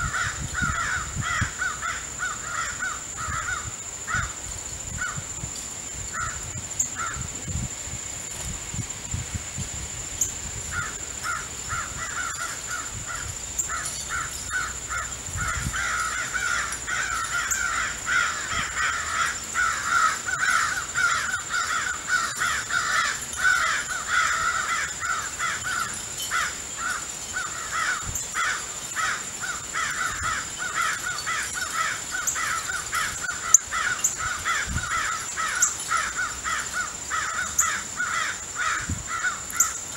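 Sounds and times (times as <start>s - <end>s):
crows cawing: 0.0s - 4.4s, 10.7s - 39.8s.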